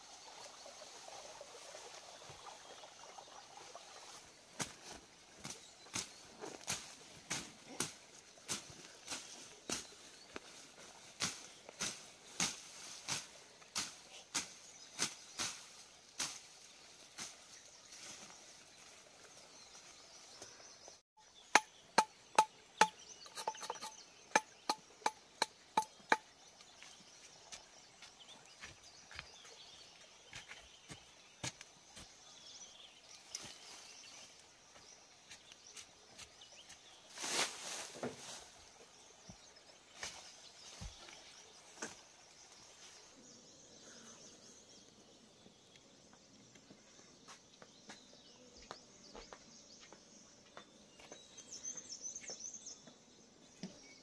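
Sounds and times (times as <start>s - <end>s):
digging tool striking soil: 21.5s - 26.3s.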